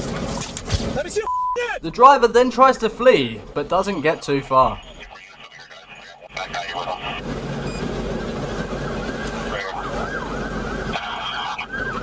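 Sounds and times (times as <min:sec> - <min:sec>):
police siren wailing: 0:04.7 - 0:12.0.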